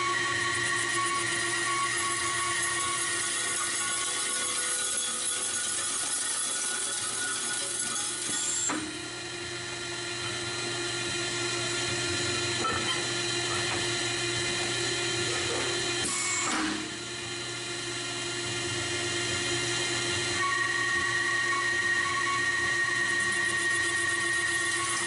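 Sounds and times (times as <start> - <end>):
hydraulic power unit humming: 8.1 - 25.0.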